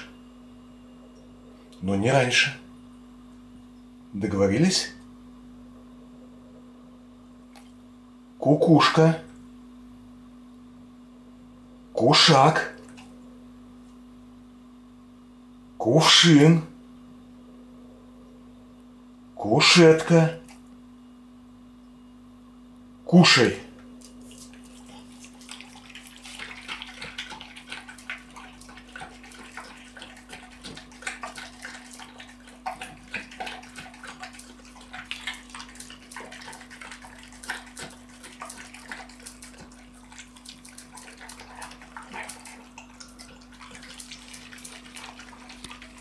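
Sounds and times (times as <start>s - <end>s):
dog chewing wetly: 23.8s - 46.0s.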